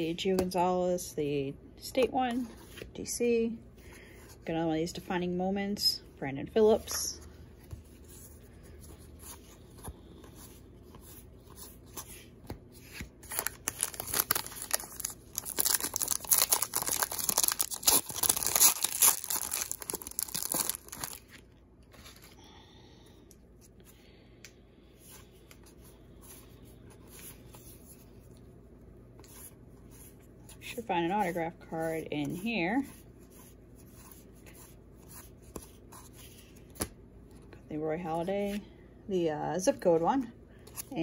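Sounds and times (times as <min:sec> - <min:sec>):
faint rustling of cards: 0:05.9 - 0:38.8
wrapper tearing and crinkling: 0:13.2 - 0:22.2.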